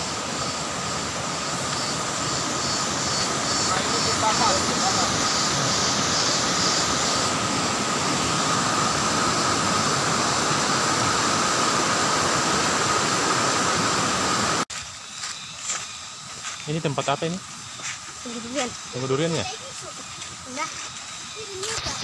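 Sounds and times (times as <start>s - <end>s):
stream flowing over rocks: 0.0s - 14.7s.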